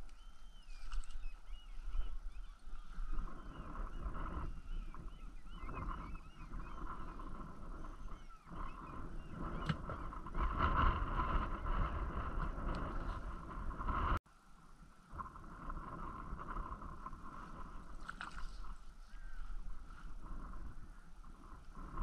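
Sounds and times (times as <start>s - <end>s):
distant flock of birds calling: 0.0s - 14.0s, 18.6s - 22.0s
wind rumbling on microphone: 0.0s - 22.0s.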